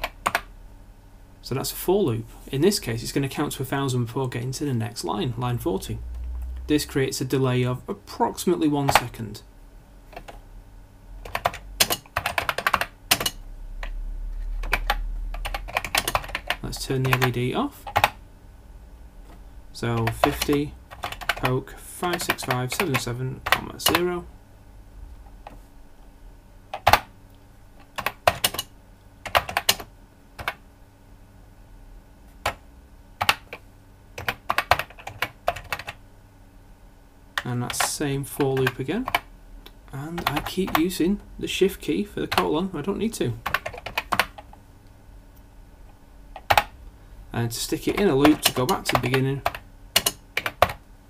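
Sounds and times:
keyboard typing: 0:00.0 - 0:00.5, 0:10.1 - 0:10.4, 0:11.2 - 0:18.2, 0:19.9 - 0:24.1, 0:26.7 - 0:27.1, 0:27.8 - 0:30.6, 0:33.2 - 0:33.6, 0:34.2 - 0:36.0, 0:37.4 - 0:39.3, 0:40.1 - 0:40.9, 0:43.4 - 0:44.6, 0:46.4 - 0:46.7, 0:47.8 - 0:50.8
keyboard key clacks: 0:11.3 - 0:13.4, 0:47.9 - 0:50.8.

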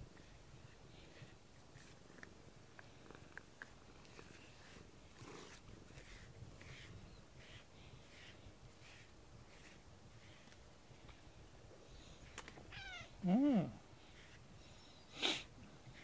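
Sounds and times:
brush swishing through fur: 0:00.0 - 0:02.3, 0:03.6 - 0:12.4, 0:14.1 - 0:16.0
cat purring: 0:00.2 - 0:10.5.

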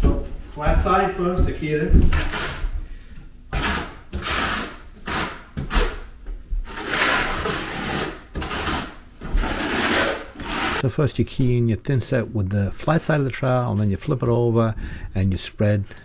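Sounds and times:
trowel scraping mortar on wood: 0:03.5 - 0:06.0, 0:06.7 - 0:10.8.

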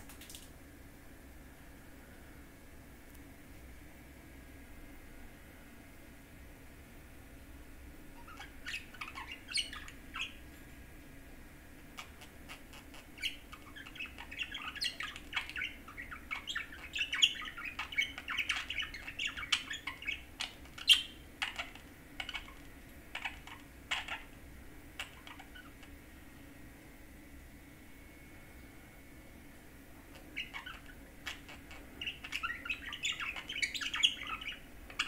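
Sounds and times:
budgerigar warbling: 0:08.2 - 0:10.4, 0:12.0 - 0:24.4, 0:25.0 - 0:25.8, 0:30.1 - 0:35.0.

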